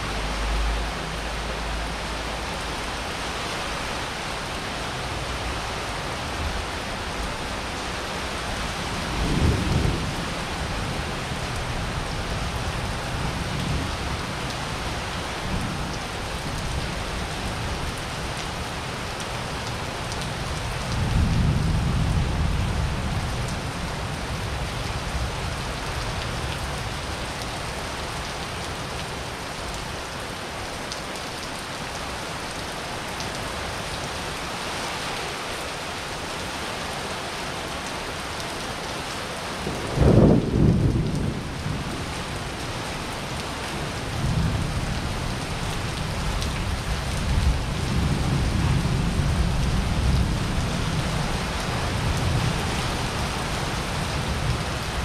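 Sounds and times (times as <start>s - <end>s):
rain on pavement: 0.0s - 55.0s
thunder rumbling: 39.6s - 42.0s
close thunderclap: 39.7s - 41.4s.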